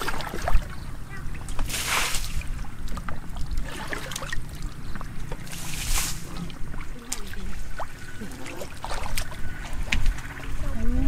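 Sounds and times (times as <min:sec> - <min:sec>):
bucket scooping water: 0:00.0 - 0:10.9
big water splash: 0:01.5 - 0:02.7, 0:05.4 - 0:10.6.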